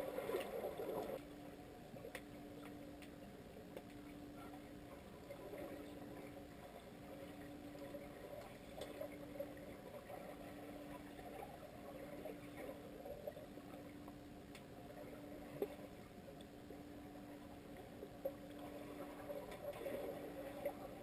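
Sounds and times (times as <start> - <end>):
steady low hum: 0.0 - 21.0
underwater water movement: 0.0 - 21.0
faint clicks: 1.9 - 5.4, 7.7 - 9.2, 12.5 - 16.6.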